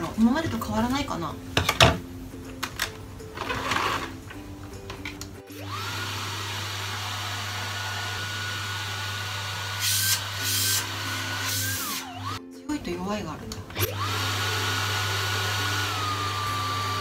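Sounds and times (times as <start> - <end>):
vacuum cleaner motor whining: 3.4 - 4.2, 5.5 - 12.4, 13.7 - 17.0.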